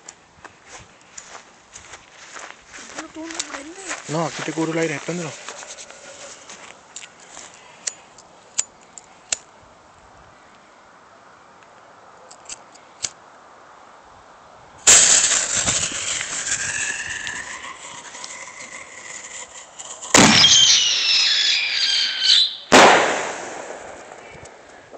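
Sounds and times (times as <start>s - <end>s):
firework burst: 14.9s - 24.3s
firework whistling: 14.9s - 24.4s.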